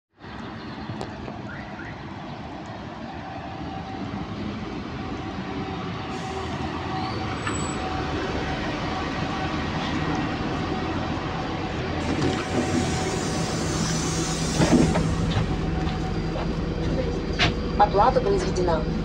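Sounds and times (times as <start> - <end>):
bus engine and tyre noise: 0.1 - 19.0
steady whine: 6.1 - 19.0.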